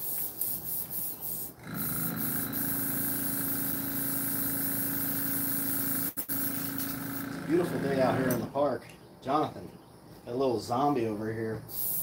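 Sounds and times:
air compressor hum and hiss: 0:00.0 - 0:08.6, 0:11.6 - 0:12.0.

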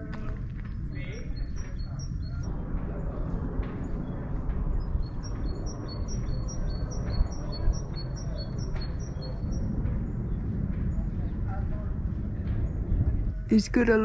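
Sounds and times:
steady low rumble: 0:00.0 - 0:14.0
small bird chirping: 0:00.7 - 0:02.5, 0:04.8 - 0:10.3.

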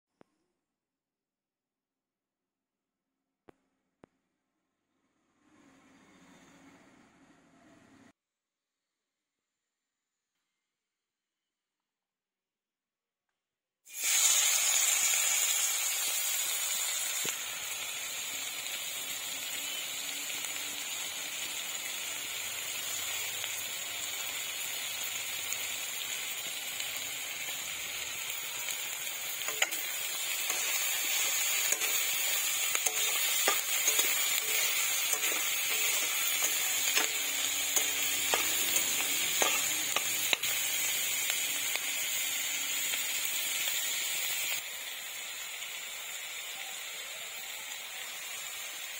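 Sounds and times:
onions sizzling in hot oil: 0:13.9 - 0:48.9.

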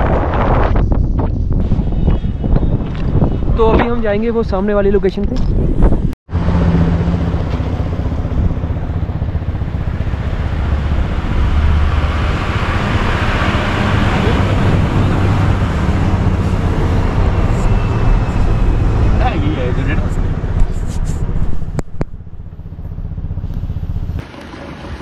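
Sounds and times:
tyre and road noise: 0:00.0 - 0:25.0
vehicle engine: 0:05.4 - 0:25.0.

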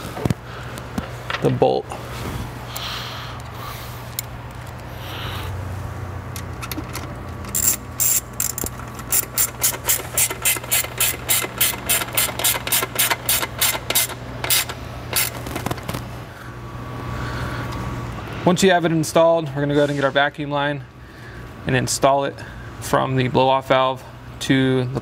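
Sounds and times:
hand ratchet clicking: 0:07.5 - 0:15.4.

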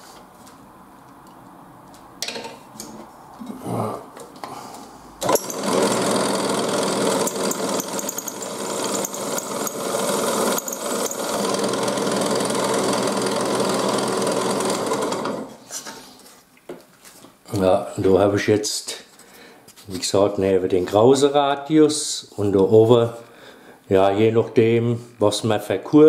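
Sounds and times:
drill press motor running: 0:05.2 - 0:15.6.

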